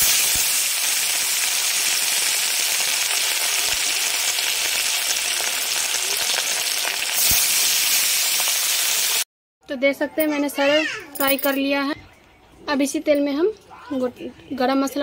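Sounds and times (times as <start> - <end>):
fish frying in oil: 0.0 - 9.2.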